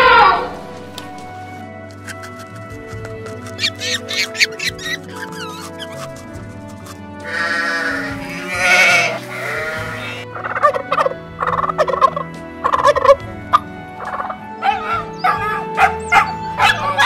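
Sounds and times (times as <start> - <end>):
faint background music: 0.0 - 17.0
turkey gobbling: 2.0 - 17.0
sheep bleating: 7.2 - 10.3.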